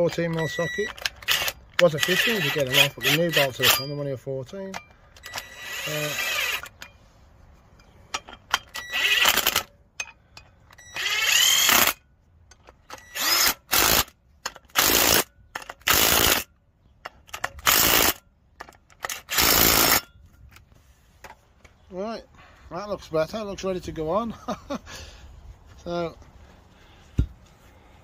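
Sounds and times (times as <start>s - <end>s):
cordless driver whirring: 0.4s - 3.8s, 5.1s - 6.8s, 8.7s - 9.7s, 10.8s - 12.0s, 13.0s - 14.1s, 19.1s - 20.0s.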